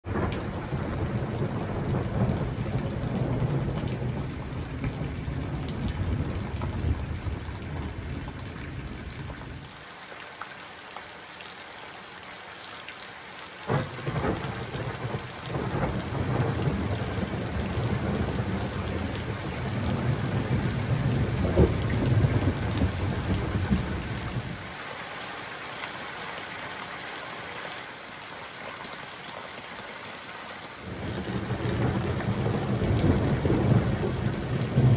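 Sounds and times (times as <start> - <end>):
rain falling: 0.0 - 34.9
thunder rumbling: 0.1 - 9.6, 13.7 - 24.7, 30.8 - 34.9
sharp thunder crack: 13.7 - 24.0.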